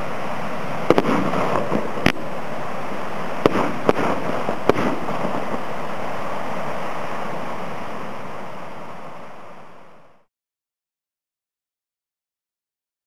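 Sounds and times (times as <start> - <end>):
firework bangs: 0.0 - 8.2
firework stars crackling: 0.0 - 10.3.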